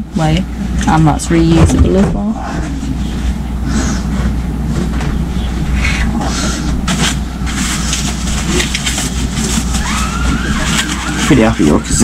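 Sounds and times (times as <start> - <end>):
steady low rumble: 0.0 - 12.0
nappies rustling and knocking: 6.5 - 11.9.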